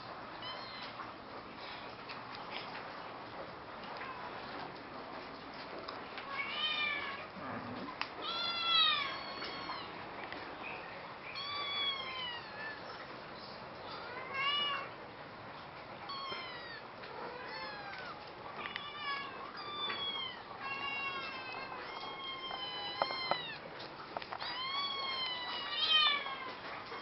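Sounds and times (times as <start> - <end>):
cat meowing: 8.2 - 10.0, 16.1 - 23.6, 24.4 - 26.5.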